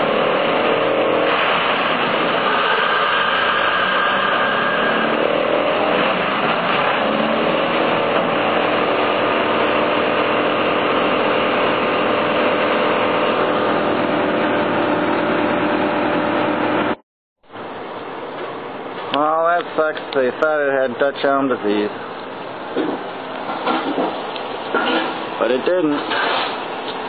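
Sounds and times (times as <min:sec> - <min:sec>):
wood chipper engine running: 0:00.0 - 0:17.0.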